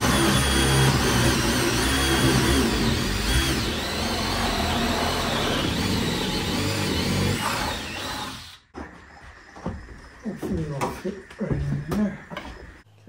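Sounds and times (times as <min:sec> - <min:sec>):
cordless drill boring into wood: 0:00.0 - 0:08.7.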